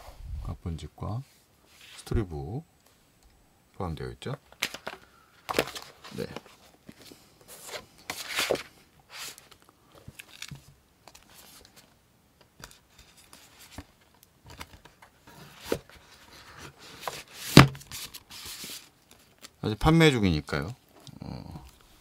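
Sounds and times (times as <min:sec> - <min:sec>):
books and cardboard rustling: 0:04.6 - 0:12.0, 0:12.6 - 0:19.6
books knocking together: 0:17.5 - 0:17.9.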